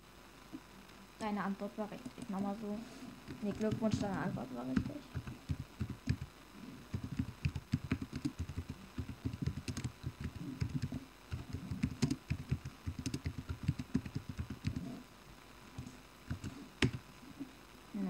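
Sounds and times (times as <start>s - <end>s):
fast typing on a keyboard: 2.0s - 2.3s, 3.3s - 6.3s, 6.9s - 14.9s, 15.8s - 17.0s.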